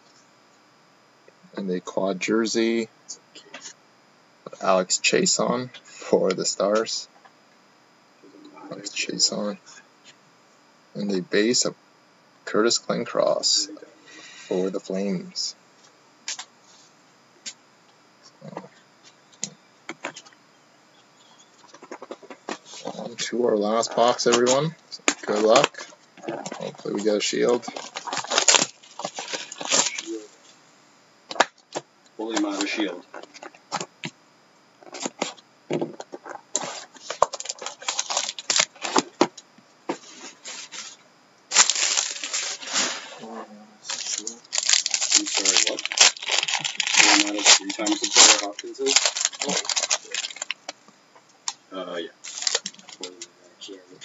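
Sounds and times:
plastic wrap crinkling and tearing: 0:25.2 - 0:30.2, 0:36.5 - 0:39.1, 0:41.5 - 0:43.2, 0:43.8 - 0:50.7, 0:52.2 - 0:53.2.

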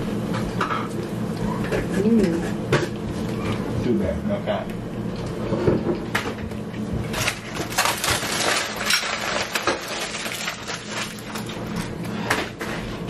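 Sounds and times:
aluminium foil crinkling: 0:07.1 - 0:12.3.

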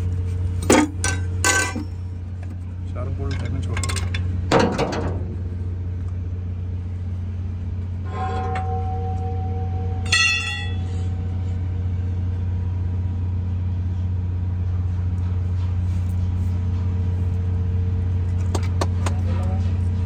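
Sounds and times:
diesel engine idling: 0:00.0 - 0:20.0
metallic rings: 0:08.0 - 0:12.3.

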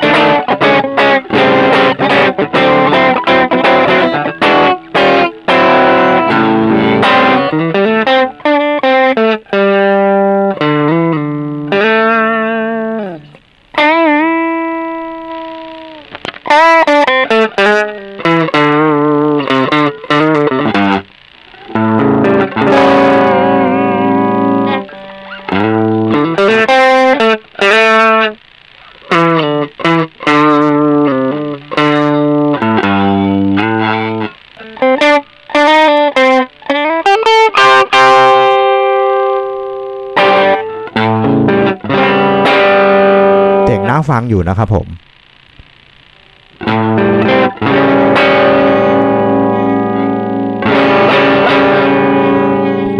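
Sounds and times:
overdriven electric guitar: 0:00.0 - 0:52.9.

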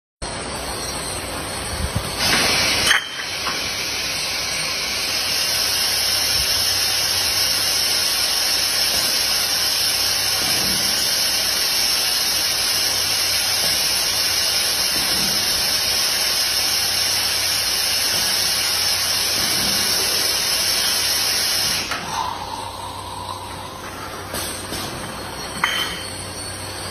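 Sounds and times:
bottle filling machine hissing: 0:00.5 - 0:26.9.

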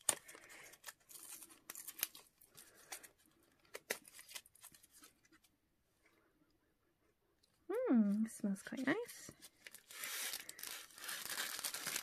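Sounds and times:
packaging crinkling and tearing: 0:00.0 - 0:05.3, 0:09.4 - 0:12.0.

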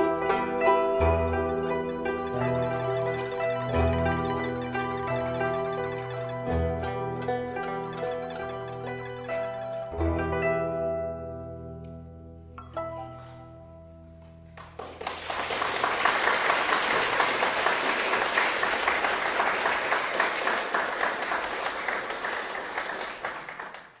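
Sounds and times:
guzheng ensemble notes: 0:00.0 - 0:23.4
audience applause: 0:14.6 - 0:24.0.

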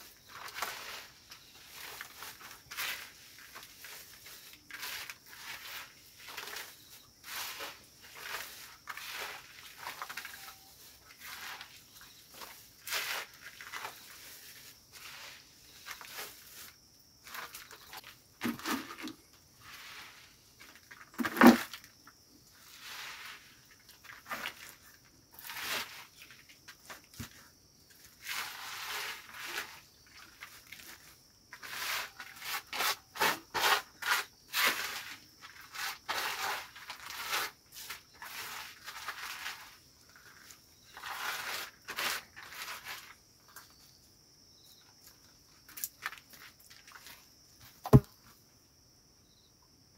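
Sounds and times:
leaves rustling on crinkling plastic: 0:00.0 - 0:27.1, 0:27.9 - 0:43.7, 0:44.8 - 0:47.3
greens dropping into plastic bucket: 0:18.4 - 0:19.2, 0:21.2 - 0:21.9.

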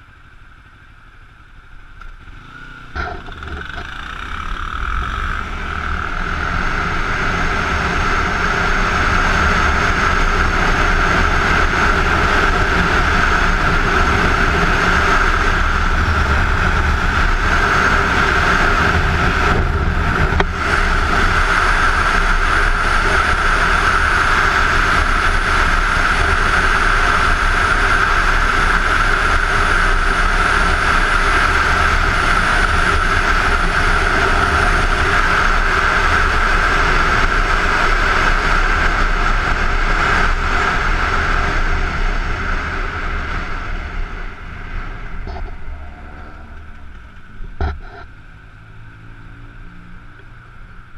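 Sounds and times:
motorcycle engine droning: 0:00.0 - 0:50.9
wind rushing over camera: 0:05.8 - 0:48.1.

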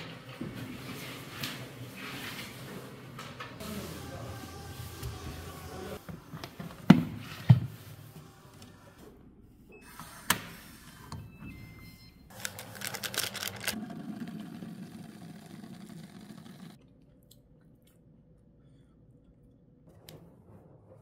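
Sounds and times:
foil packet crinkling: 0:12.3 - 0:13.8.

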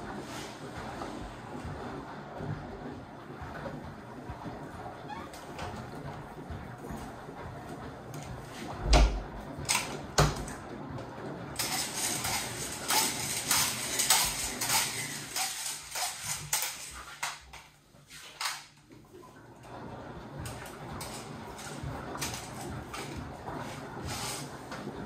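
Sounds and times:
washing machine drum rattling: 0:00.0 - 0:25.0
sharp knocks in washing machine: 0:08.1 - 0:10.6.

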